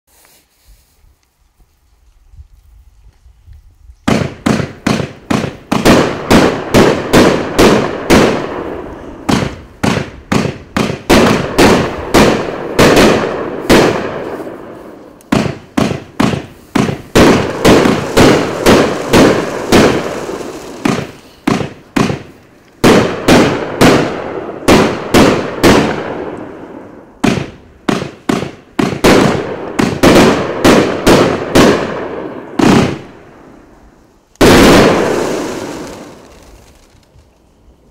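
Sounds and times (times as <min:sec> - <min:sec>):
firework cake bangs: 0:04.1 - 0:14.4, 0:15.3 - 0:26.3, 0:27.2 - 0:33.1.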